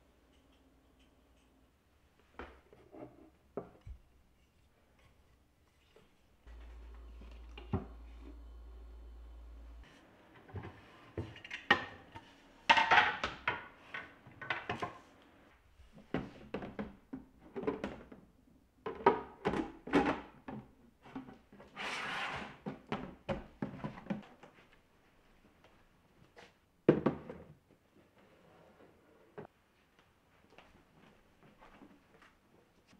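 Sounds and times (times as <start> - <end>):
plastic boxes knocking and clicking: 16.2 - 21.5.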